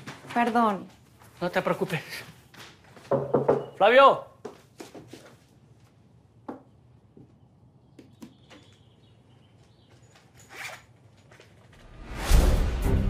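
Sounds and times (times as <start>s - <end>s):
zipper pull: 10.4s - 10.9s.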